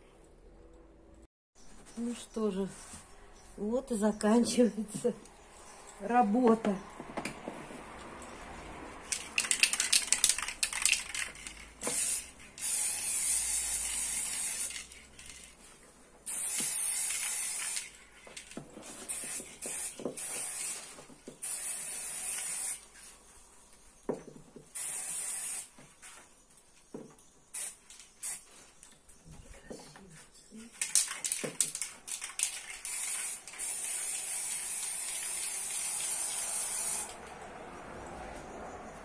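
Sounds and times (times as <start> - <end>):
spray can rattling: 9.0 - 15.6, 16.3 - 22.8, 24.7 - 25.7, 27.5 - 28.5, 30.7 - 37.2
spray paint hissing: 9.1 - 15.5, 16.2 - 18.0, 19.0 - 22.9, 24.7 - 25.8, 27.5 - 28.5, 30.8 - 37.2.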